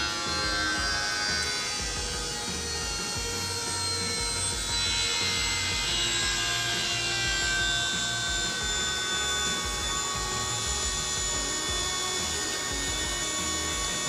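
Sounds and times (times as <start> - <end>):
electric fuel pump whining: 0.0 - 14.0.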